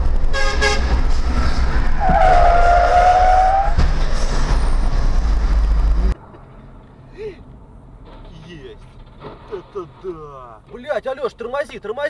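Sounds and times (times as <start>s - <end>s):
road and wind rumble: 0.0s - 12.0s
tyre squeal: 1.9s - 4.8s.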